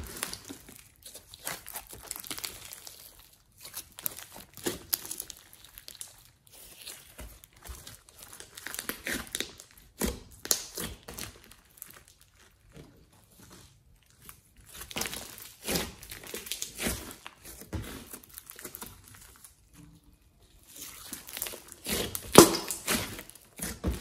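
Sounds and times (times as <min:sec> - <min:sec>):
slime squishing and crackling: 0:00.0 - 0:24.0.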